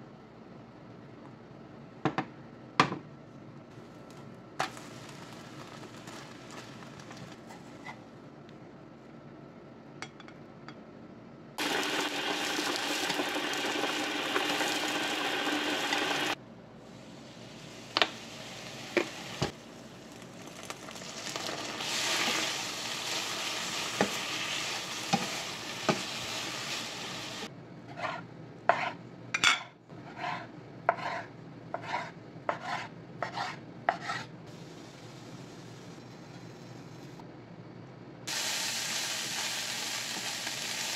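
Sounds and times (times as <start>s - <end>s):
food sizzling in frying pan: 4.6s - 7.6s, 11.6s - 16.4s, 17.2s - 27.5s, 38.3s - 40.9s
knife chopping on cutting board: 30.1s - 34.3s.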